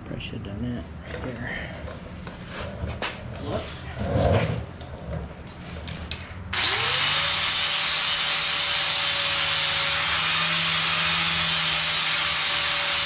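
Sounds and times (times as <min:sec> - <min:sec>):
angle grinder grinding steel: 0:06.6 - 0:13.0.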